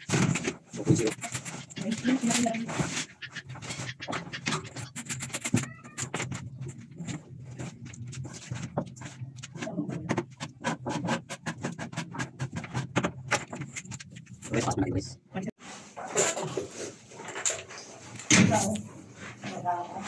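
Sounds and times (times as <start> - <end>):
wire scraping in plastic conduit: 0.0 - 14.7.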